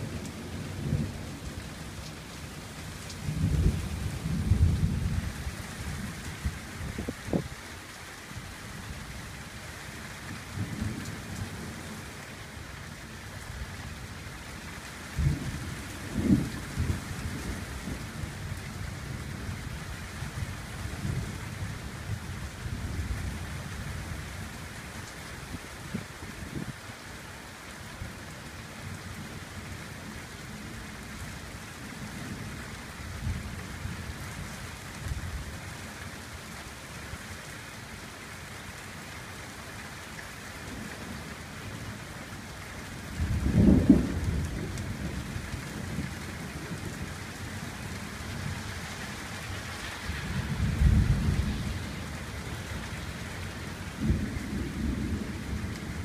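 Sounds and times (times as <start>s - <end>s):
steady rain: 0.0s - 56.0s
thunder rumbling: 3.2s - 5.5s, 15.1s - 18.4s, 43.1s - 47.2s, 49.4s - 56.0s.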